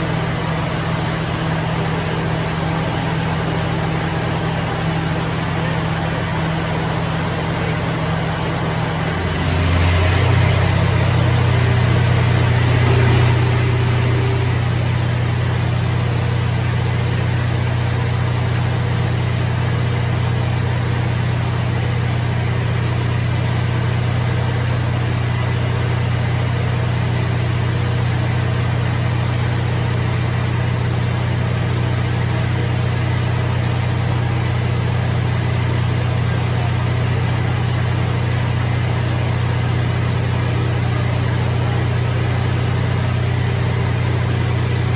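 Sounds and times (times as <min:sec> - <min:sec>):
diesel generator droning: 0:00.0 - 0:44.9.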